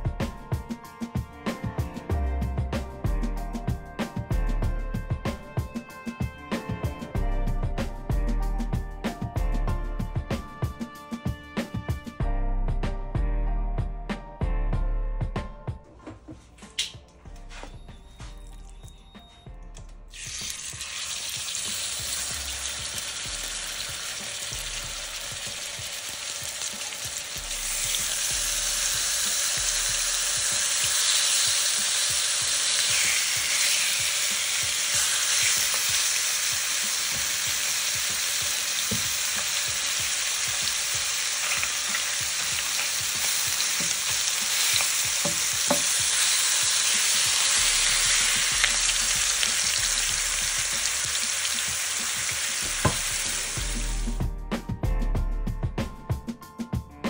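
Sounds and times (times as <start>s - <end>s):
meat sizzling in hot oil: 20.1s - 54.2s
tongs knocking on pan: 43.6s - 46.0s.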